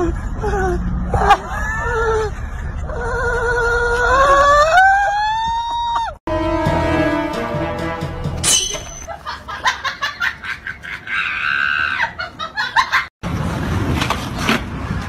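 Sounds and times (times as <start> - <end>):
dog whining and howling: 2.9 - 6.0
music: 6.3 - 8.7.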